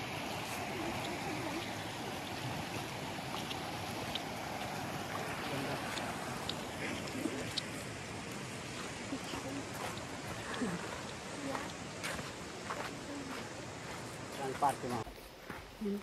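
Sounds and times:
stream running over rocks: 0.0 - 16.0
footsteps on stones: 8.6 - 16.0.

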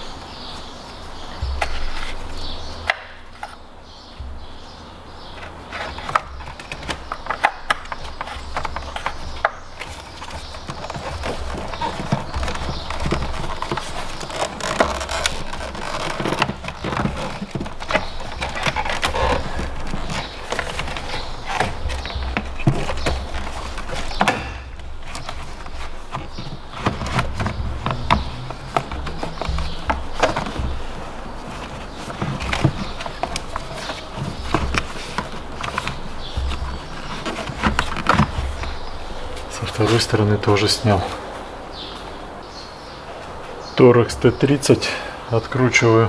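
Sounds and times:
steady low hum: 0.0 - 43.6
hard plastic clicks and knocks: 5.3 - 39.5.

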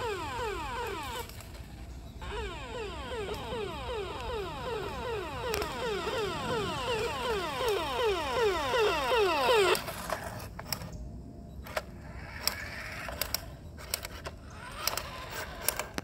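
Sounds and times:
toy electronic siren: 0.0 - 10.2
scattered clicks: 0.0 - 11.0, 11.6 - 16.0
toy car rolling on concrete: 0.0 - 11.0, 11.6 - 16.0.

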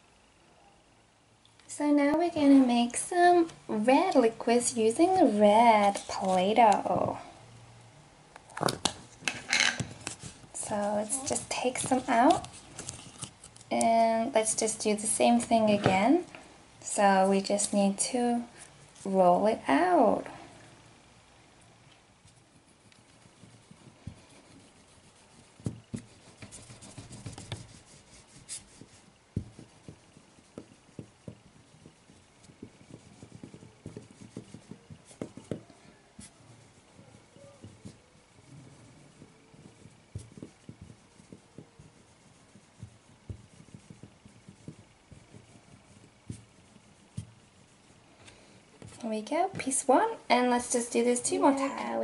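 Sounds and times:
faint rubbing of dough on table: 9.8 - 16.2, 22.2 - 50.1.

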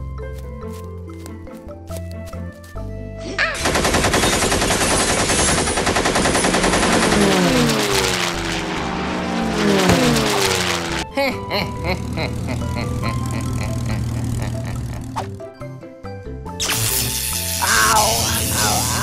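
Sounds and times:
background music: 0.0 - 5.7, 6.8 - 19.0
cartoon machine-gun fire: 3.6 - 8.5
falling tone: 7.9 - 11.1.

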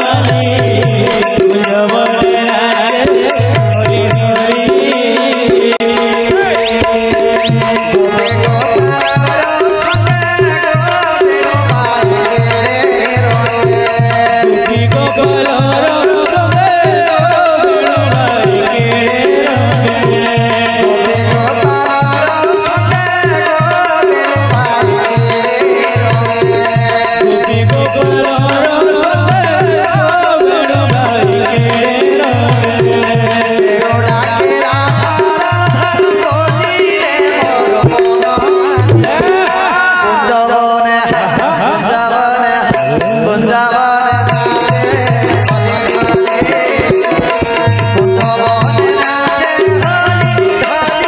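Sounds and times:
jingling rattle percussion: 0.0 - 39.8, 40.9 - 51.0
steady drum rhythm: 0.0 - 51.0
wavering melody line: 5.6 - 31.7.

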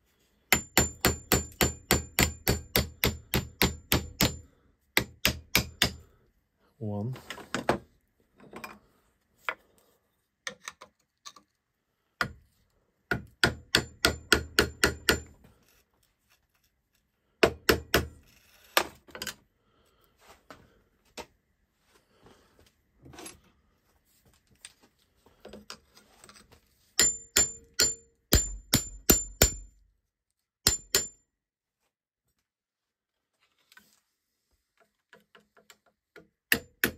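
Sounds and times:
sharp metal taps on screwdrivers: 0.6 - 4.4, 5.0 - 6.0, 13.1 - 15.3, 27.0 - 29.7, 30.7 - 31.2.

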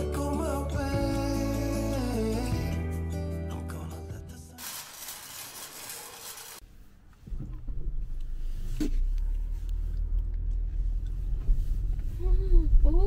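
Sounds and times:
car engine and road rumble: 6.6 - 13.0.

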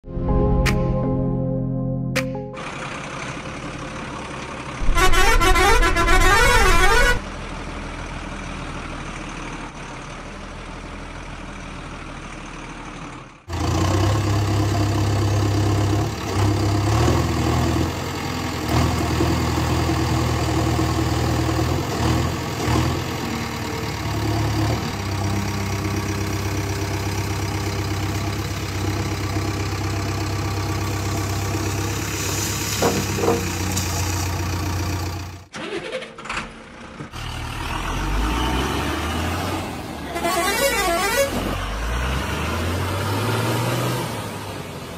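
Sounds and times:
heavy vehicle engine running: 2.5 - 44.9
truck horn warbling tune: 4.8 - 7.3, 40.0 - 41.6.

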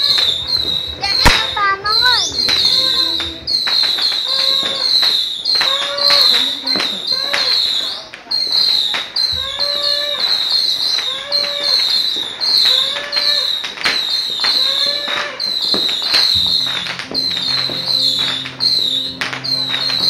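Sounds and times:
steady music tones: 0.0 - 4.5, 16.2 - 20.0
fireworks and firecrackers banging: 0.0 - 20.0
short pitched call: 16.2 - 20.0.

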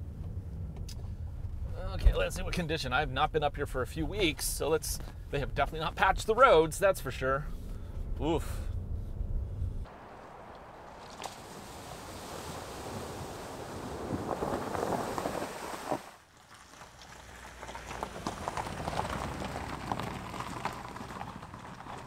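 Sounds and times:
low steady hum: 0.0 - 12.2
tyres crunching on gravel: 9.9 - 22.0
tyres splashing through puddle: 9.9 - 22.0.

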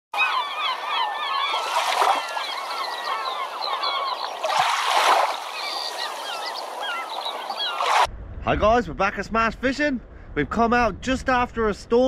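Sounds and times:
flock of birds calling: 0.2 - 8.1.

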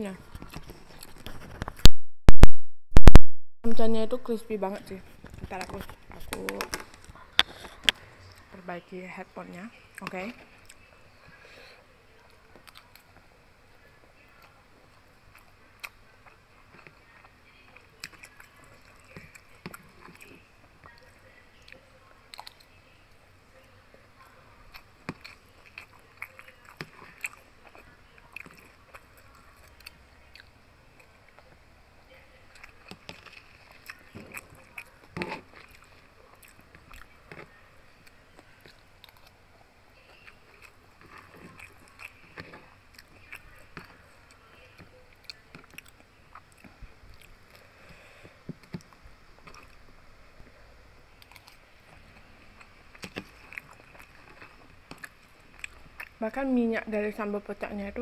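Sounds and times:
close-up chewing crunches: 0.2 - 1.8, 24.6 - 31.6, 32.5 - 39.4, 40.0 - 50.5, 51.2 - 56.2.

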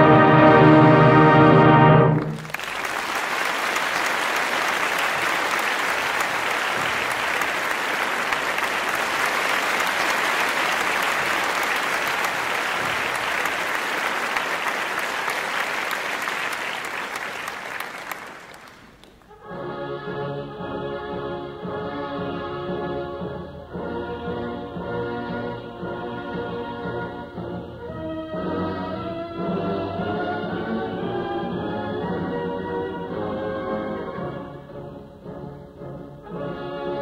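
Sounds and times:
wind band playing: 0.0 - 37.0
audience applauding: 2.2 - 19.3.

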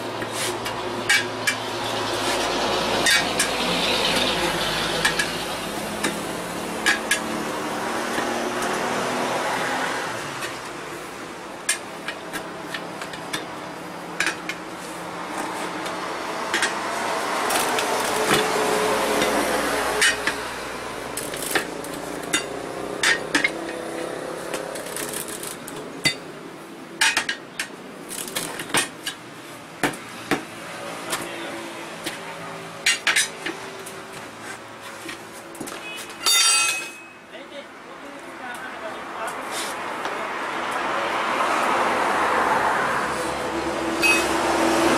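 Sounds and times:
steady background noise: 0.0 - 44.9
tyre levers clinking on wheel rim: 35.6 - 37.2.

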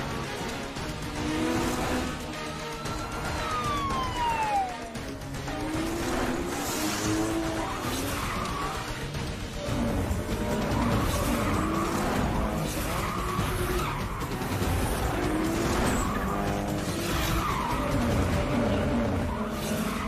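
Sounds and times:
car engines revving: 0.0 - 20.0
film chase music: 0.0 - 20.0.

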